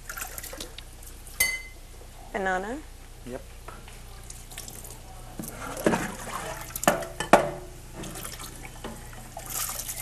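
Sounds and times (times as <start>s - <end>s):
dishes and cutlery clinking: 1.4s - 1.8s.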